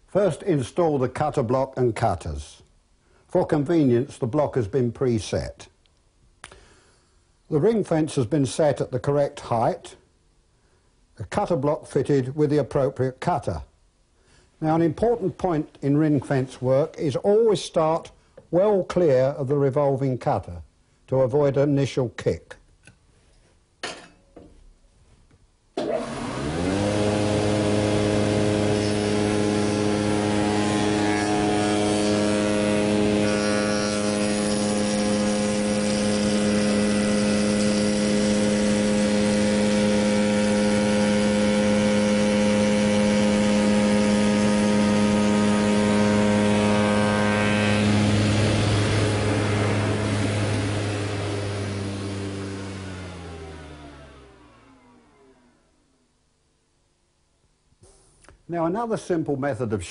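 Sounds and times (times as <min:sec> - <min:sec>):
cutter working wood: 0:25.8 - 0:55.6
spindle moulder motor humming: 0:25.8 - 0:55.7.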